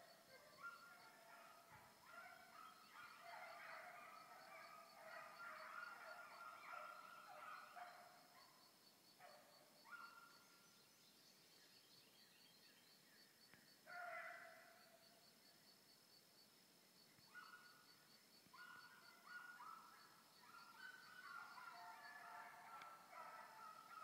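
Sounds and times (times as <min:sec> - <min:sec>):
distant hounds baying: 0:00.0 - 0:08.6, 0:09.2 - 0:10.6, 0:13.8 - 0:15.1, 0:18.5 - 0:24.0.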